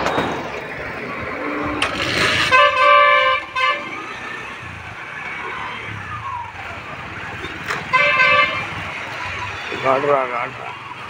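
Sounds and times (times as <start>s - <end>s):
road noise: 0.0s - 11.0s
vehicle horn honking: 2.3s - 4.2s, 7.8s - 8.8s.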